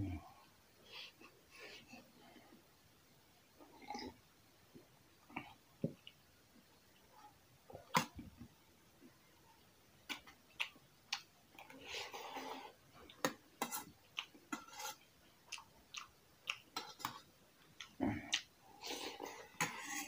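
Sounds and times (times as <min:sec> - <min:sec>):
chewing and mouth smacks: 0:10.1 - 0:11.8, 0:14.1 - 0:14.6, 0:15.4 - 0:19.8
metal spoon scraping a bowl: 0:13.6 - 0:13.9, 0:14.5 - 0:15.0, 0:19.2 - 0:20.0.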